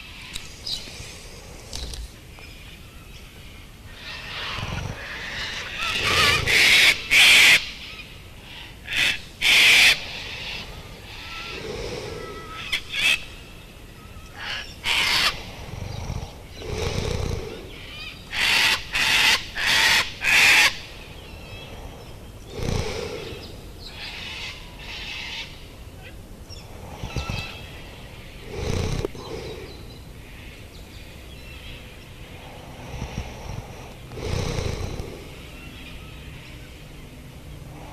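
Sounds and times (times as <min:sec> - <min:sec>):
low parrot calls: 0:04.0 - 0:13.3.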